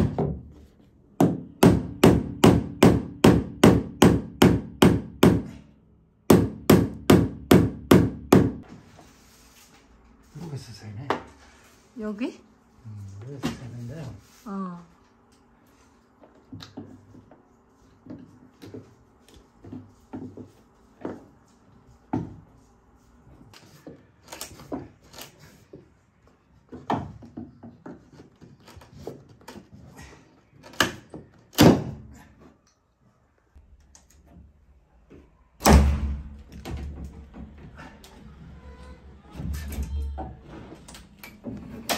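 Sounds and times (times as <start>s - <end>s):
loud knock: 35.6s - 37.0s
heavy thud: 35.6s - 37.6s.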